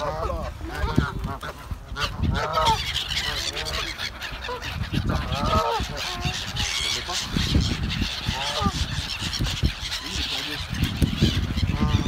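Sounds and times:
gulls calling: 0:00.0 - 0:12.0.

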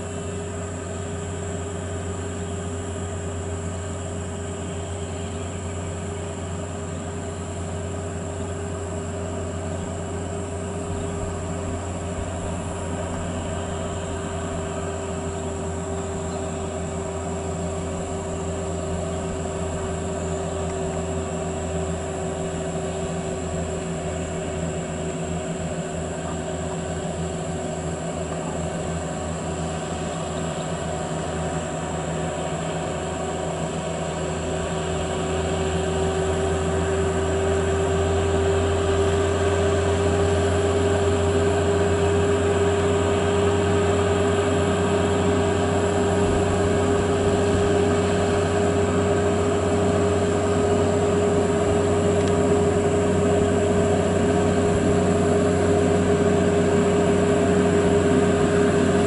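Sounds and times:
diesel engine whine: 0:00.0 - 0:59.0.

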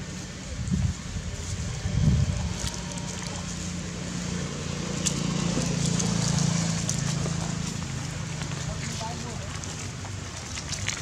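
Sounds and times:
low engine-like drone: 0:00.0 - 0:08.7.

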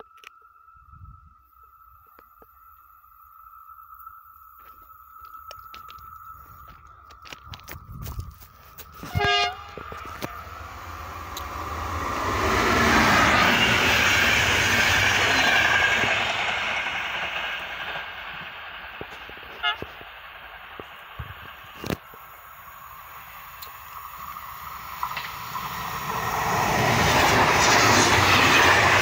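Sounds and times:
train wheels rushing on rails: 0:07.5 - 0:29.0
train horn toot: 0:09.0 - 0:10.5, 0:19.5 - 0:20.0.

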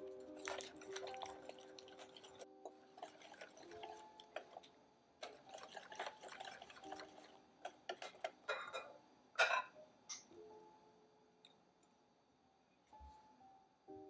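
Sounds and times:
whisk clattering: 0:00.0 - 0:08.6
faint music: 0:00.0 - 0:14.0.

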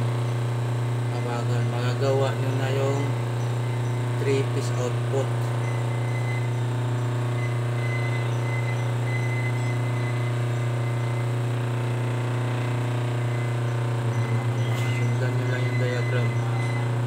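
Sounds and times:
electric motor humming: 0:00.0 - 0:17.0.

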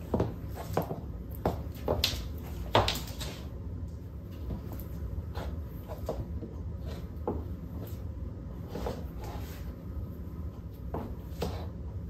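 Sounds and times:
footsteps on hardwood floor: 0:00.0 - 0:03.5, 0:04.3 - 0:08.0, 0:10.8 - 0:11.7
steady low hum: 0:00.0 - 0:12.0.

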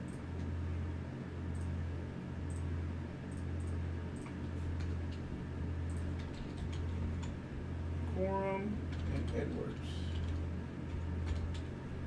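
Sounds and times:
computer mouse clicks: 0:05.8 - 0:07.4.

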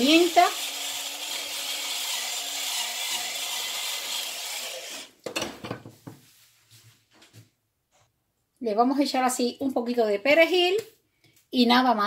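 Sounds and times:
pepper mill grinding: 0:00.0 - 0:05.1.

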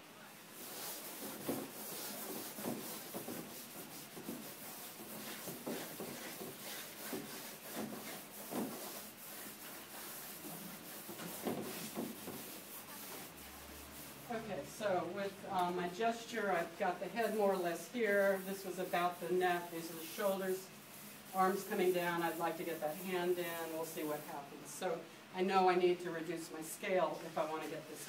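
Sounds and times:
charcoal scratching on paper: 0:00.6 - 0:14.3.

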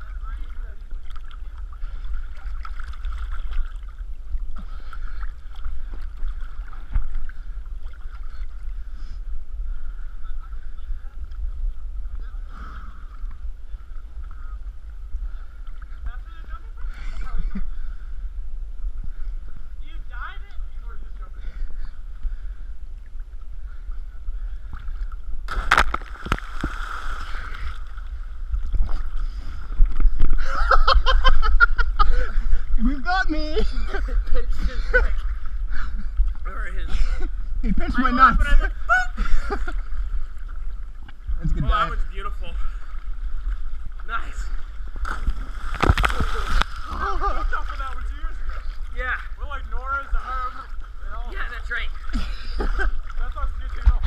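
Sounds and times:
muffled water sloshing: 0:00.0 - 0:54.0
person splashing into water: 0:25.5 - 0:27.9, 0:45.0 - 0:47.3.

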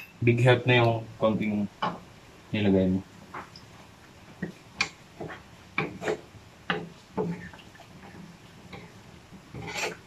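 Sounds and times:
wooden spatula scraping metal wok: 0:05.1 - 0:10.0.

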